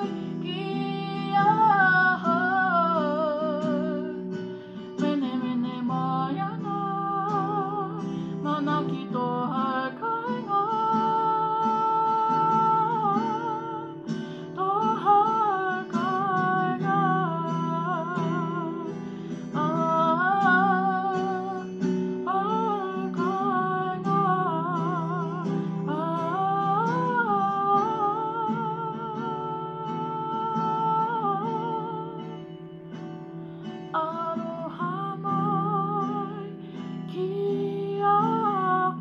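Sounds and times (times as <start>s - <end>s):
woman singing with vibrato: 0.0s - 32.7s, 33.6s - 39.0s
acoustic guitar: 0.0s - 39.0s.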